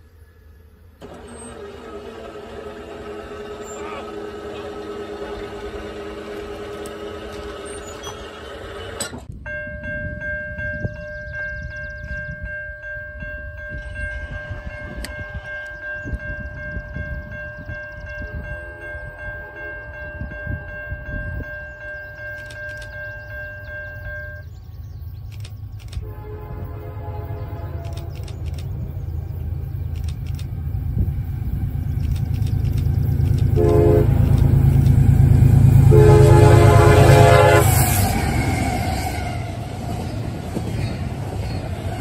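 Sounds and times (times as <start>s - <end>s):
train rumble: 0.0s - 42.0s
train horn chord: 18.2s - 21.4s, 26.0s - 28.3s, 33.5s - 34.6s, 35.2s - 39.6s.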